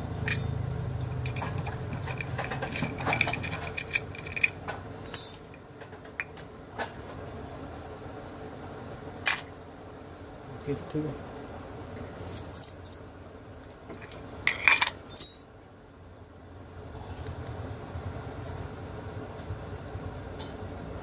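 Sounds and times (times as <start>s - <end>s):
padlock and keys clinking: 0.0s - 5.6s, 12.0s - 13.0s, 14.0s - 15.5s.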